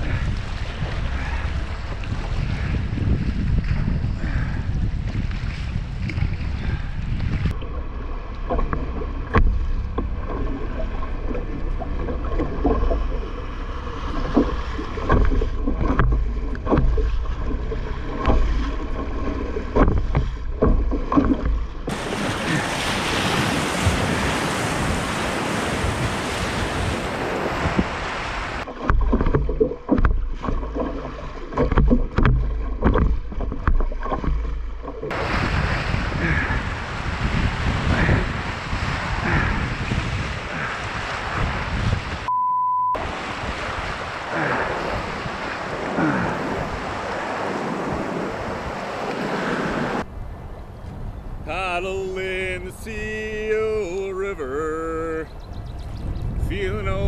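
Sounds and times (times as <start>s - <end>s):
water slapping against hull: 0.0s - 42.3s, 43.0s - 50.7s
wind buffeting microphone: 0.0s - 42.3s, 43.0s - 53.6s, 55.0s - 57.0s
river water rushing: 7.5s - 29.8s, 34.9s - 39.6s, 43.0s - 50.2s
breaking whitewater rush: 21.9s - 28.7s, 35.1s - 42.3s, 43.0s - 50.1s.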